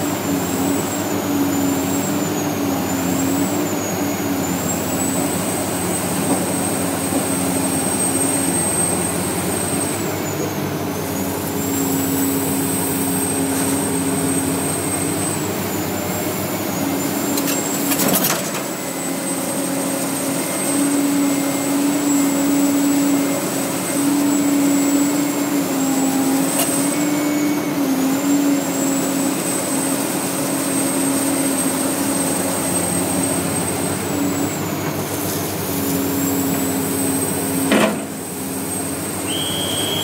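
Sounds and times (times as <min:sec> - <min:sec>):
excavator diesel engine running: 0:00.0 - 0:40.0
high whine: 0:39.2 - 0:40.0.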